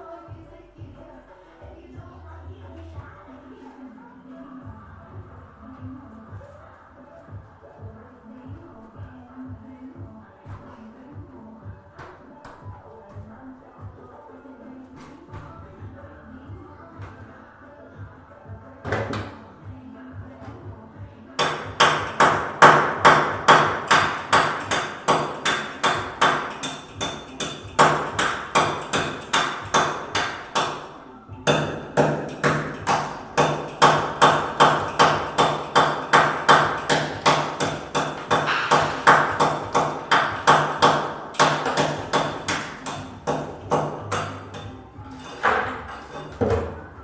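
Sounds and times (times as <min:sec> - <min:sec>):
hammer strikes with metallic ring: 0:31.5 - 0:46.4.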